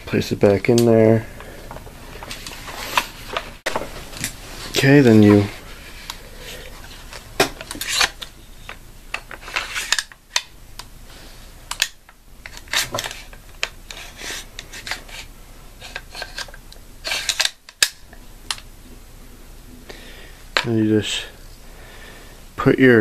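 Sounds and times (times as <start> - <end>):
rifle parts rubbing and scraping: 2.1 - 10.2, 12.4 - 17.8.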